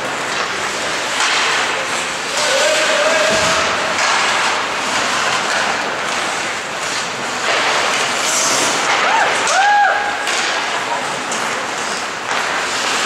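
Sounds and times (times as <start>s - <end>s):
skates scraping ice: 0.0s - 13.0s.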